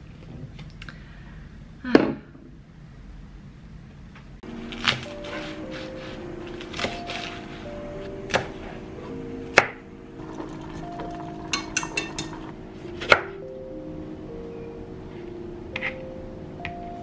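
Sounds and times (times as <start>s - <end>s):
soft background music: 4.4s - 17.0s.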